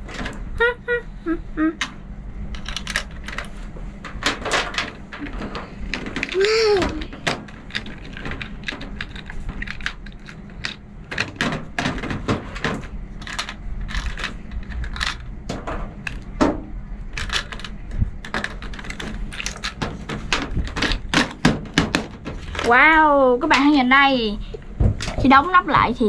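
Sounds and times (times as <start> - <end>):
plastic toy pieces clicking: 2.6 - 3.4, 5.2 - 11.5, 13.2 - 15.3, 17.2 - 21.9.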